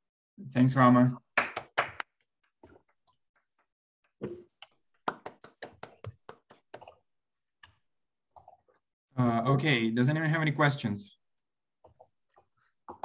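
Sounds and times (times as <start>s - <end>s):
hand claps: 1.4s - 2.2s, 5.0s - 6.9s.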